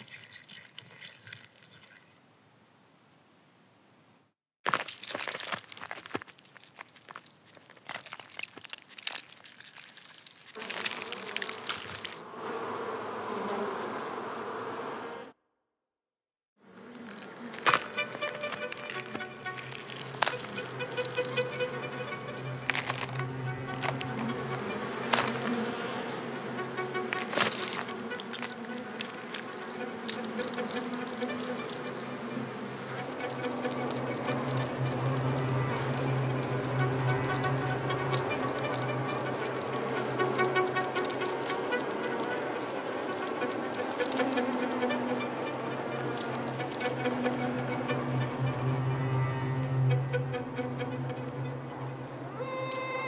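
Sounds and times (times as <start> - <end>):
bee chewing wax crackling: 4.7 - 14.5, 16.9 - 48.4
honeybees buzzing: 10.6 - 15.4, 16.7 - 52.3.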